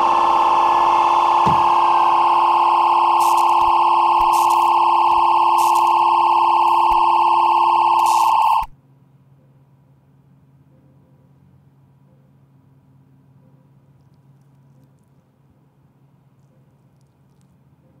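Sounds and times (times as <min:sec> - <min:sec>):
crackles: 0:00.0 - 0:08.7
high-pitched electronic tone: 0:00.0 - 0:08.7
faint low hum: 0:00.0 - 0:18.0.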